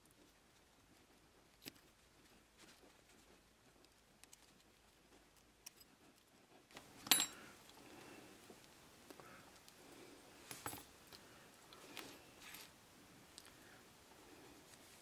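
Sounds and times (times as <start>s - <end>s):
faint rubbing and ticks: 0.0s - 6.8s.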